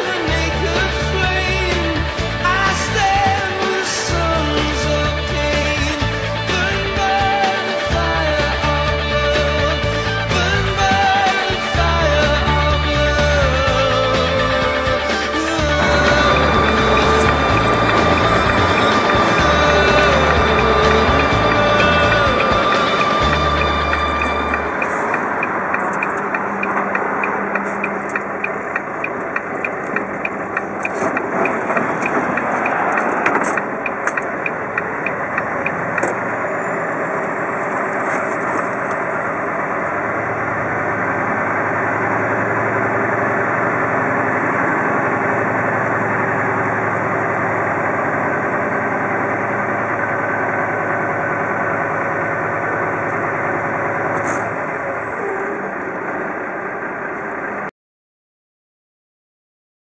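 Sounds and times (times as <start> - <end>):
truck diesel engine running: 0.0 - 57.7
regular ticking: 15.8 - 36.4
steady low hum: 15.8 - 57.7.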